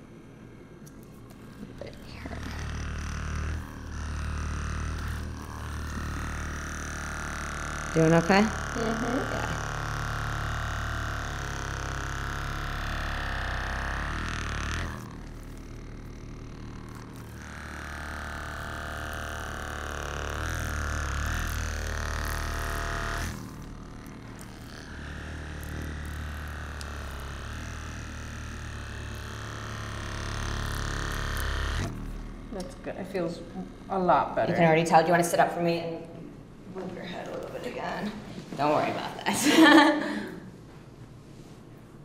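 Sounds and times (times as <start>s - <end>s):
electric massager motor hum: 0.0s - 42.0s.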